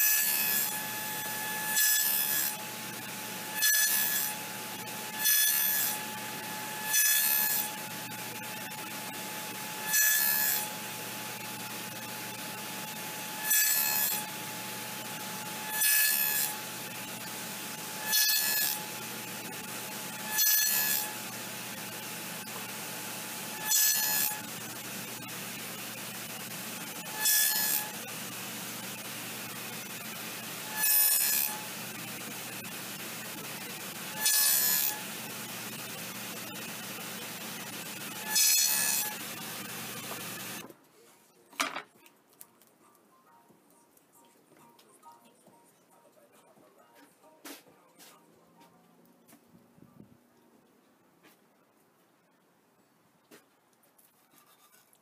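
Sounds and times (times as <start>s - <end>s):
saw blade cutting wood: 0.0s - 40.6s
table saw running hum: 0.0s - 40.6s.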